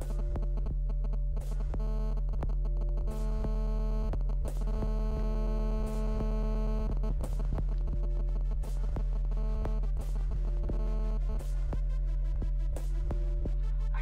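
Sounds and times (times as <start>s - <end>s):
loud low hum: 13.1s - 14.0s.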